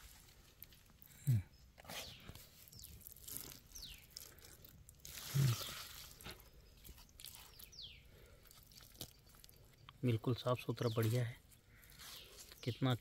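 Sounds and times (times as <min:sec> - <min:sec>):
hands scraping soil: 0:01.7 - 0:09.6, 0:10.8 - 0:13.0
leaves rustling and crunching: 0:02.1 - 0:07.9.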